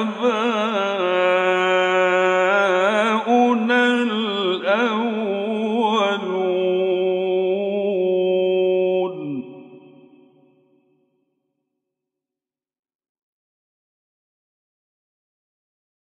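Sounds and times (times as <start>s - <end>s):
man chanting melismatic recitation: 0.0s - 10.2s.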